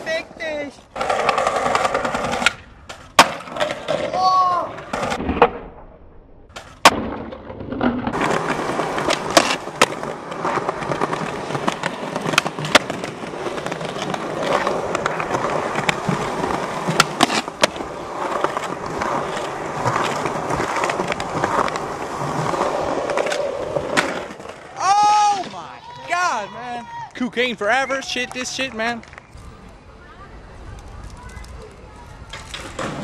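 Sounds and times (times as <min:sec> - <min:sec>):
skateboard wheels rolling on concrete: 0:00.0 - 0:33.0
skateboard clacking on ground: 0:06.5 - 0:24.8, 0:30.7 - 0:33.0.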